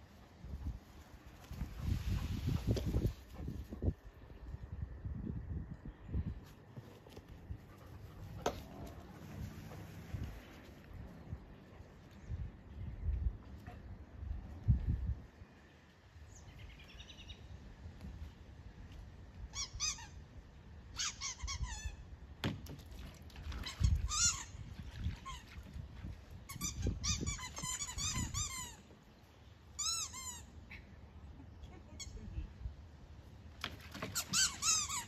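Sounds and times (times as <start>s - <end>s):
squeaky toy squeaking: 19.5s - 20.1s, 21.0s - 22.0s, 23.7s - 24.5s, 26.5s - 28.8s, 29.8s - 30.5s, 34.2s - 35.0s.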